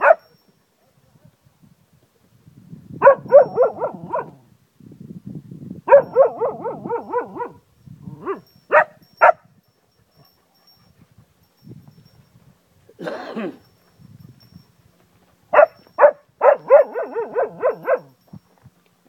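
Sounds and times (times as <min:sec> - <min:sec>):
dog barking sharply: 0:00.0 - 0:00.3, 0:15.6 - 0:18.0
dog howling: 0:16.6 - 0:18.1.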